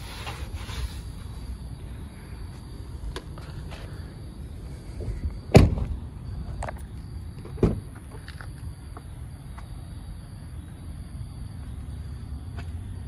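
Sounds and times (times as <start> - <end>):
car door clunk: 7.4 - 7.9.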